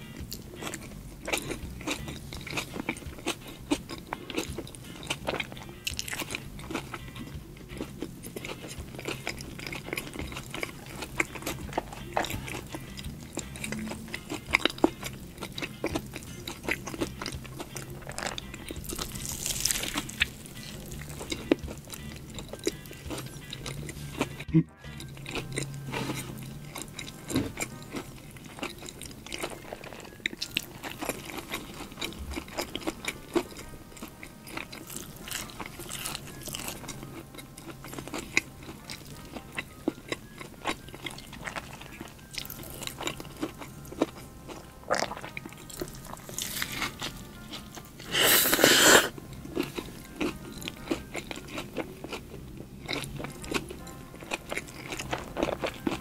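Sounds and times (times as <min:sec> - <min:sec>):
crunchy chewing: 0:00.0 - 0:56.0
wet mouth sounds: 0:44.9 - 0:47.2, 0:48.0 - 0:49.2.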